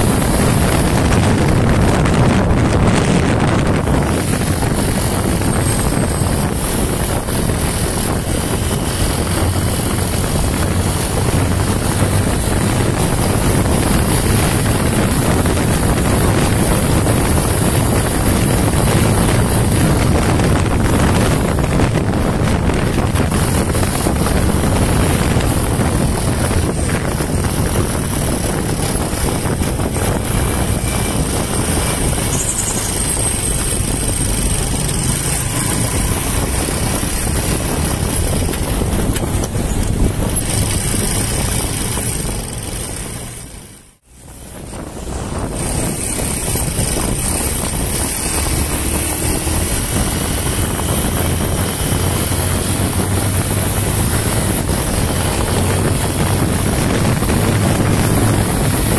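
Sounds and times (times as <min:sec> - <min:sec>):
motorcycle engine running: 0:00.0 - 0:58.9
wind rush on microphone: 0:00.0 - 0:58.9.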